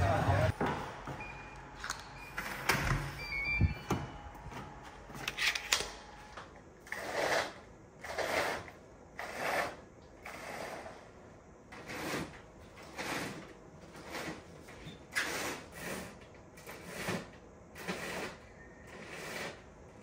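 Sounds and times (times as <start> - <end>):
electronic door lock beeping: 1.1 - 4.3
curtain drawn along rail: 6.8 - 11.1, 11.8 - 19.7.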